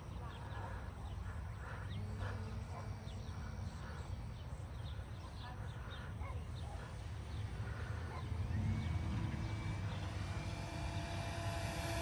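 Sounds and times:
rc plane electric motor whine: 0:06.8 - 0:12.0.

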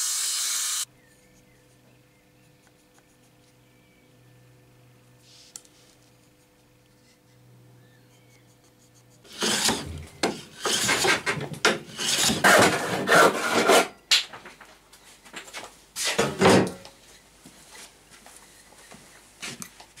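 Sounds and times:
wood scraping on wood: 0:08.2 - 0:13.9.

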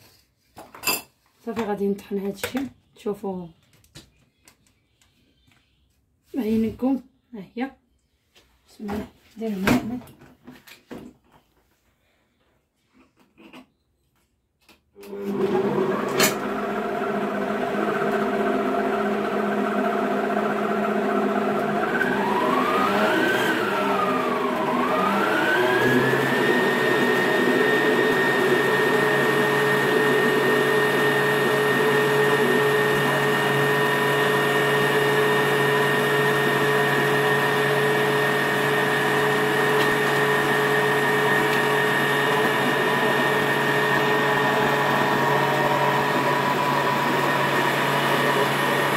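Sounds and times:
blender motor whining: 0:15.0 - 0:48.9.

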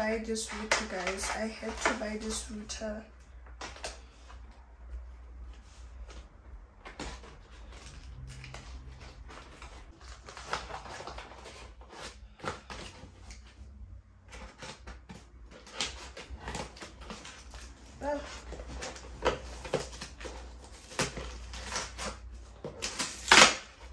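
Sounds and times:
cardboard package being torn open: 0:06.8 - 0:13.5, 0:14.3 - 0:23.9.

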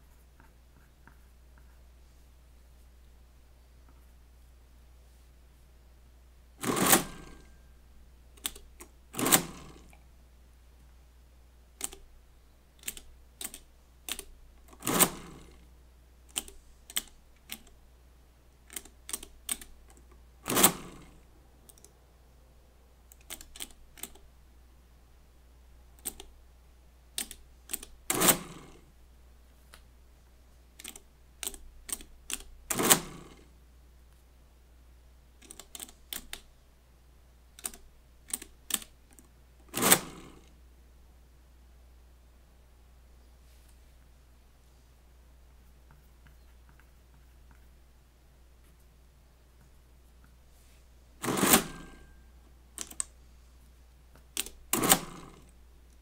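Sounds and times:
calculator machine cycling: 0:06.6 - 0:07.4, 0:08.4 - 0:09.8, 0:12.8 - 0:15.6, 0:39.7 - 0:40.2, 0:51.2 - 0:52.2, 0:54.4 - 0:55.4
calculator keys clicking: 0:11.8 - 0:12.0, 0:26.0 - 0:26.3, 0:52.8 - 0:53.1.

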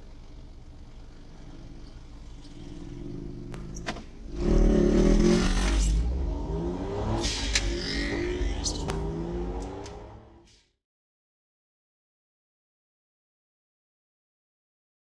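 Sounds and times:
car engine hum: 0:00.0 - 0:10.5
motorcycle accelerating: 0:01.0 - 0:10.5.

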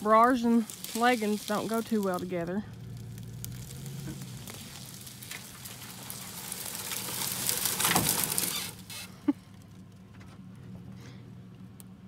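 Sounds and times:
footsteps through dry grass and leaves: 0:00.0 - 0:08.9
truck engine idling: 0:00.0 - 0:12.0.

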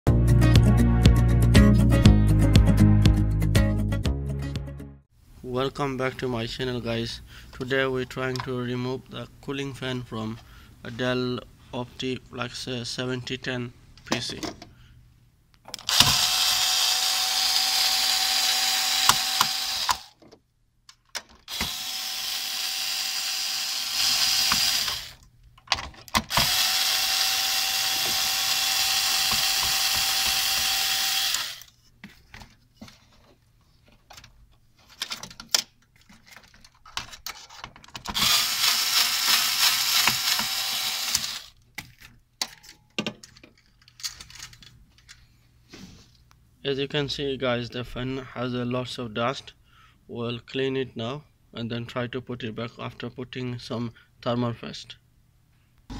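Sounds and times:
electric screwdriver motor whine: 0:15.9 - 0:20.1, 0:21.5 - 0:25.2, 0:26.3 - 0:31.7, 0:38.1 - 0:41.6.

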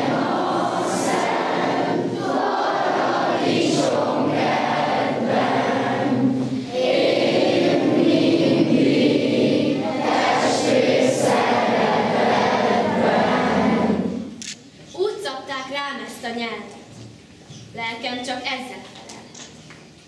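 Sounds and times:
children's choir singing: 0:00.0 - 0:14.4.

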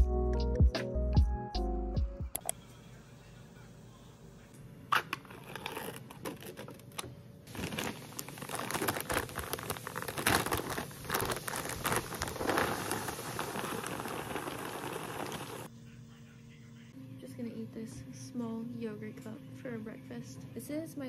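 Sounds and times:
plastic bag rustling and crackling: 0:05.3 - 0:15.7.

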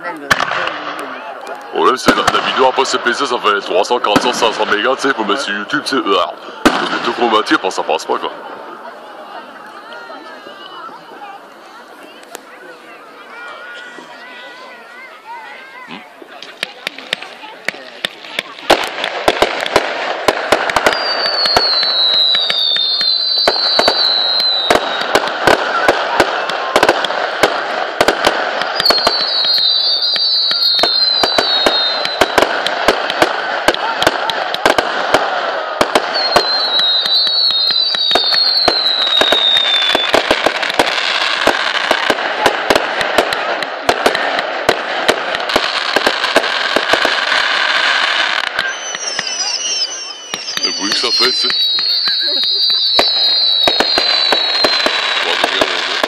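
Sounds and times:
fireworks bangs and crackles: 0:00.0 - 0:56.0
whistles falling in pitch: 0:20.9 - 0:25.1, 0:28.8 - 0:32.4, 0:36.1 - 0:40.2, 0:48.5 - 0:55.0.

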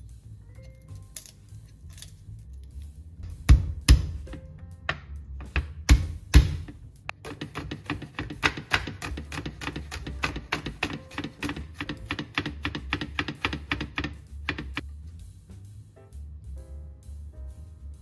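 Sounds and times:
knife chopping on wooden board: 0:05.4 - 0:14.8.

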